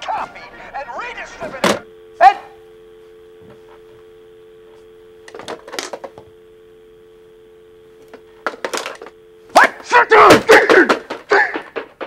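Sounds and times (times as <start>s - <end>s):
telephone dial tone: 1.4s - 10.4s.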